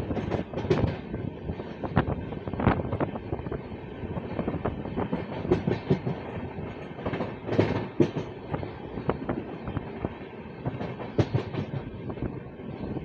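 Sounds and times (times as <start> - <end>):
train wheels clattering over track: 0.0 - 13.0.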